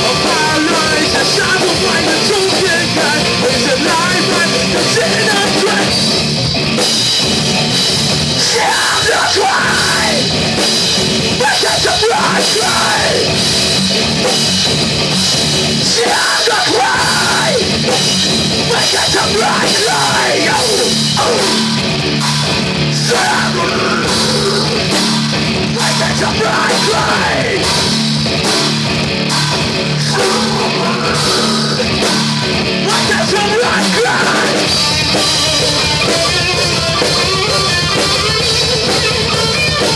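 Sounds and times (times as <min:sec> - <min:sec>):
person singing into a microphone: 0:00.0 - 0:06.0, 0:08.4 - 0:10.3, 0:11.4 - 0:13.4, 0:15.8 - 0:17.8, 0:18.6 - 0:21.6, 0:22.9 - 0:24.8, 0:25.7 - 0:27.9, 0:30.0 - 0:32.0, 0:32.8 - 0:34.8
drum kit with cymbals: 0:00.0 - 0:39.9
electric guitar: 0:00.0 - 0:39.9.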